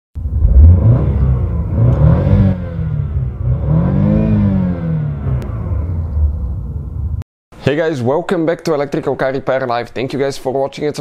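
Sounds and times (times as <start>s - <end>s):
car engine revving: 0.2s - 7.2s.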